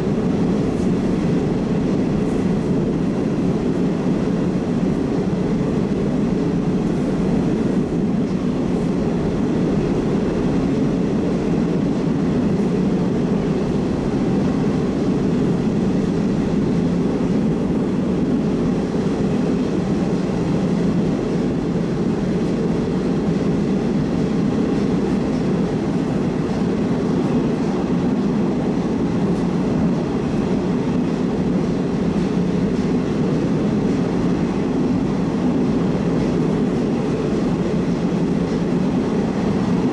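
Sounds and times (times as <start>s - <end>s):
subway train rumbling: 0.0s - 39.9s.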